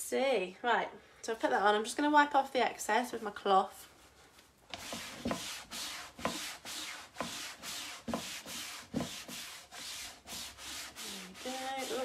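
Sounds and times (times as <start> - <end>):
cloth rubbing on wood: 4.0 - 12.0.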